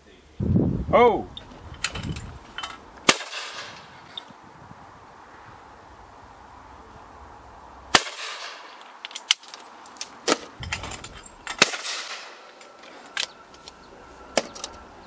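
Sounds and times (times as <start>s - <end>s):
shotgun shots with echo: 3.1s - 3.9s, 7.9s - 8.7s, 11.6s - 12.5s
small sharp cracks and clicks: 8.8s - 10.5s.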